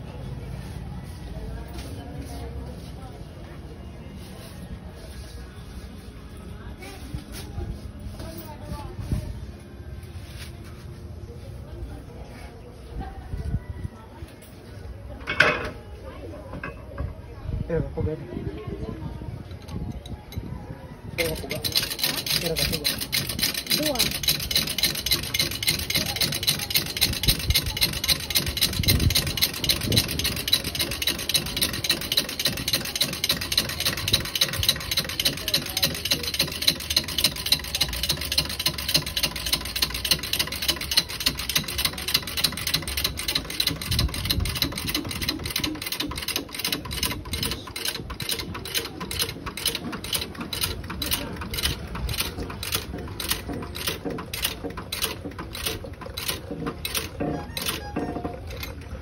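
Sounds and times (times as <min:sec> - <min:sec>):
press clicking and grinding: 0:21.2 - 0:59.0.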